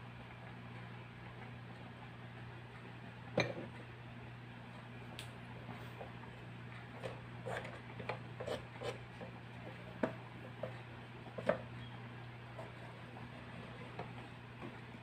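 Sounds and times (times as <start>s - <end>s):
steady low hum: 0.0s - 15.0s
knife scraping squash: 8.4s - 9.0s.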